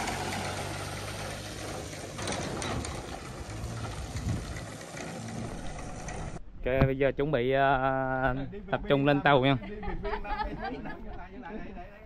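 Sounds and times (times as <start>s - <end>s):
truck engine humming: 0.0s - 6.4s
water running off trailer: 0.0s - 6.4s.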